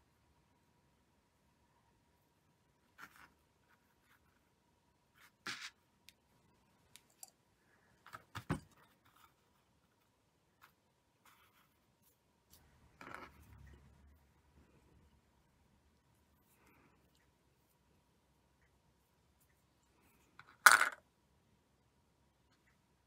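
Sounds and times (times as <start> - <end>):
hands handling thread clicks and rustles: 5.4 - 7.4.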